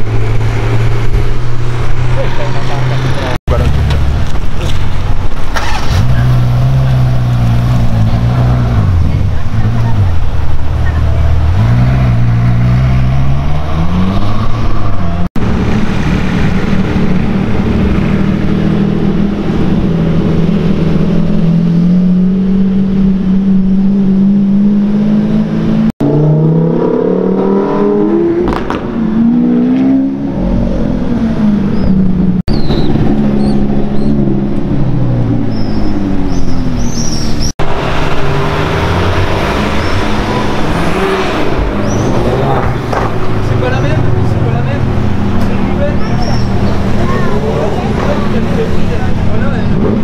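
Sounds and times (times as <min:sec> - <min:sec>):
supercar engines accelerating: 0:00.0 - 0:50.0.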